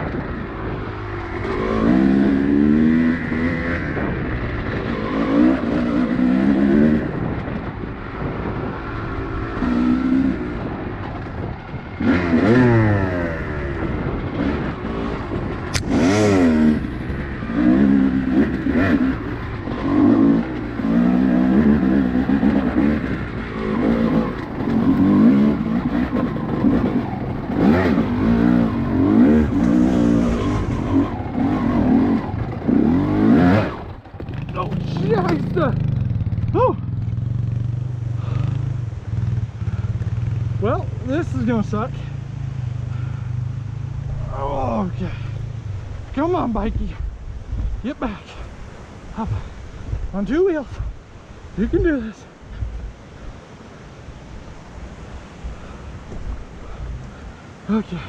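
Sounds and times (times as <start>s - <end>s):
off-road vehicle engine revving: 0.0s - 7.4s, 8.2s - 10.8s, 11.9s - 46.8s.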